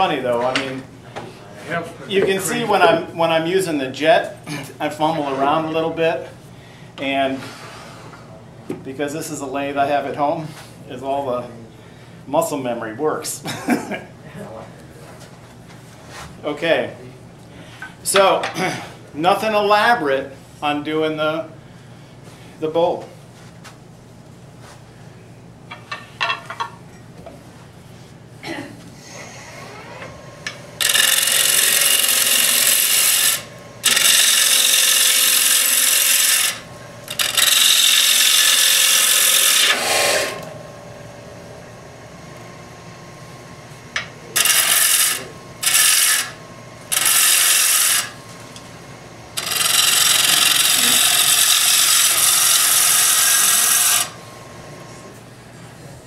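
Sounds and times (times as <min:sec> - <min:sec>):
lathe humming: 0:29.1 - 0:56.0
lathe tool cutting wood: 0:29.4 - 0:41.4, 0:44.0 - 0:48.2, 0:49.3 - 0:54.6.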